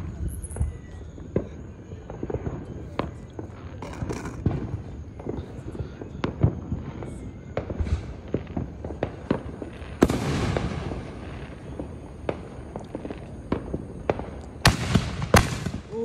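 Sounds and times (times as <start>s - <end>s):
firework hissing crackle: 0.0s - 16.0s
fireworks popping and cracking: 0.0s - 16.0s.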